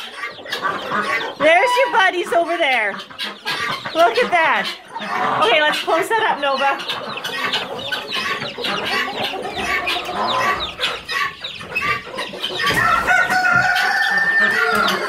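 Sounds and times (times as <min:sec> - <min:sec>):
chickens clucking: 0:00.0 - 0:15.0
chicks peeping: 0:00.0 - 0:15.0
rooster crowing: 0:12.8 - 0:15.0.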